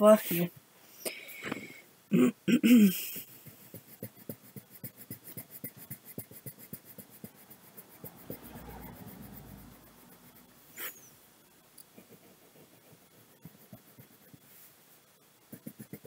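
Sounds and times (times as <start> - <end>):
crayon scratching on paper: 3.1 - 11.1, 11.9 - 16.0.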